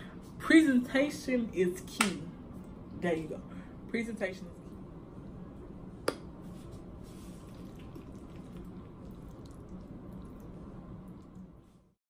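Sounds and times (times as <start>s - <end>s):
soft scooping of macaroni: 6.6s - 11.9s.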